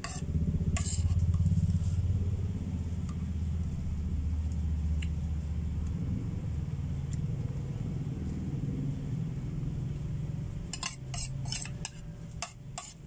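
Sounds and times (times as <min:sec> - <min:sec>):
metal spoon scraping ceramic plate: 0:00.0 - 0:01.5, 0:10.7 - 0:13.0
low rumble: 0:00.3 - 0:10.7.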